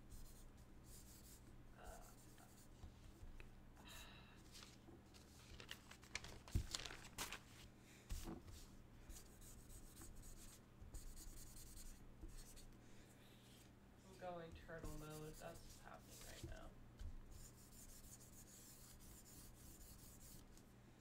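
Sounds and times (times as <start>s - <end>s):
low electrical hum: 0.0s - 21.0s
marker scratching on paper: 0.1s - 2.8s, 8.5s - 12.7s, 14.7s - 16.6s, 17.3s - 20.6s.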